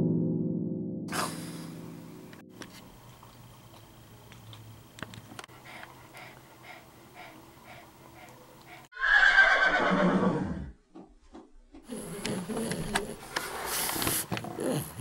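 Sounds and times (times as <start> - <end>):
horse whinnying: 9.0 - 10.8.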